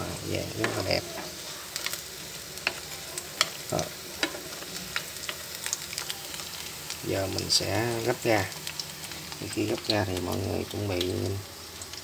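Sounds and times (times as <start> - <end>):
fritters sizzling in oil: 0.0 - 12.0
chopsticks clicking on pan: 2.6 - 3.6.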